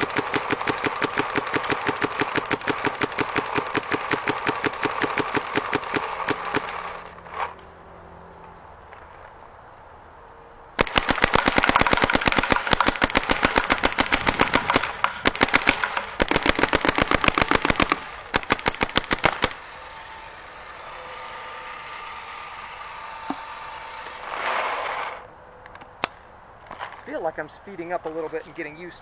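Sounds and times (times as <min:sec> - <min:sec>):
paintball marker firing: 0:00.0 - 0:07.1, 0:10.8 - 0:19.6.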